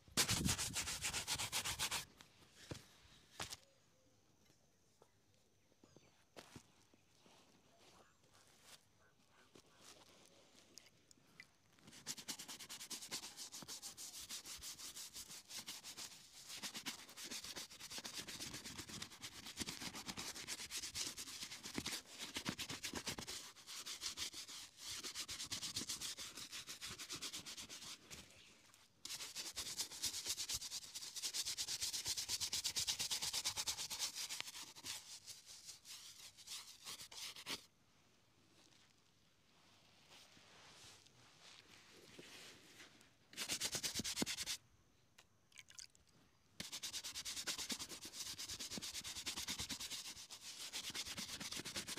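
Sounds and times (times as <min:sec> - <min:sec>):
brush scrubbing leather boot: 0:11.8 - 0:28.2, 0:29.1 - 0:37.6, 0:46.6 - 0:51.9.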